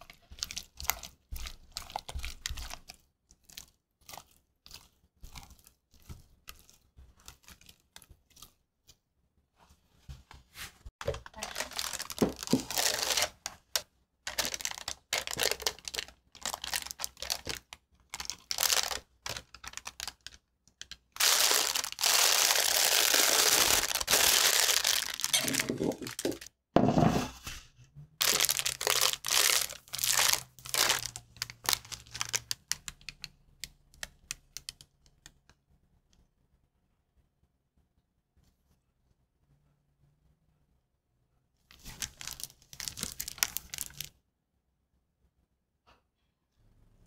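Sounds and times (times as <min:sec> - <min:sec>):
plastic piping bag crinkling: 0:00.0 - 0:08.6, 0:11.0 - 0:26.5, 0:28.2 - 0:35.3, 0:41.7 - 0:44.2.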